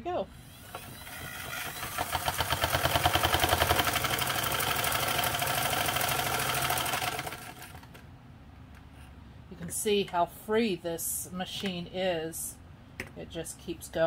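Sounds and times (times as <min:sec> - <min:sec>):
sewing machine clattering: 0:00.6 - 0:08.0.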